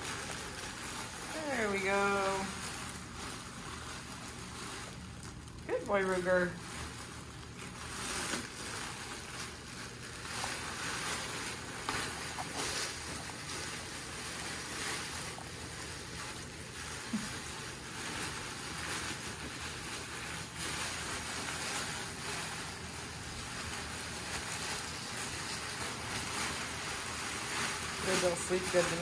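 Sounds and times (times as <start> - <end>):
fabric rustling: 0.0 - 29.0
paws scrabbling on hard floor: 6.6 - 29.0.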